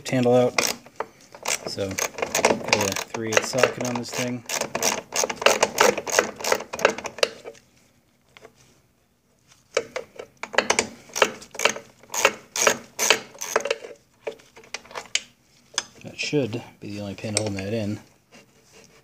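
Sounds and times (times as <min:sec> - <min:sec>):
ratchet wrench clicking: 0:00.6 - 0:00.8, 0:01.4 - 0:06.9, 0:11.1 - 0:13.8.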